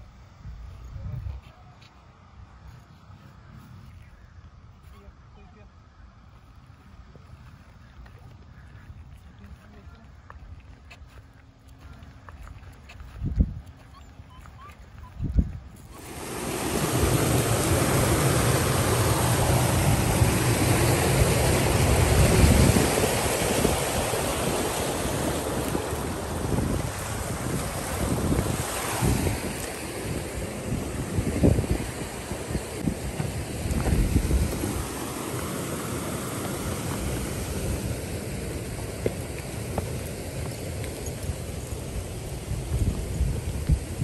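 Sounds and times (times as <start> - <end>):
wind buffeting microphone: 12.6 - 44.0
stream rushing over rocks: 15.8 - 44.0.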